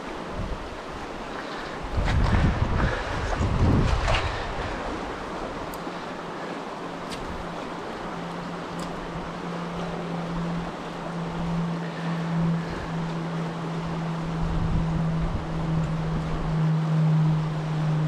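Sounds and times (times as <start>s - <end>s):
wind buffeting the microphone: 0.0s - 5.9s, 12.5s - 16.6s
low hum: 0.0s - 18.0s.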